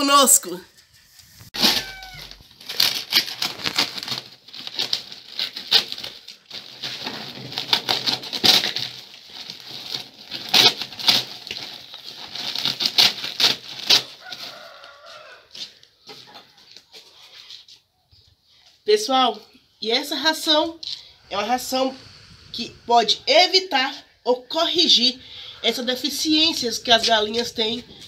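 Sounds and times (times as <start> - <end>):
plastic sack ripping and crinkling: 1.6 - 15.4.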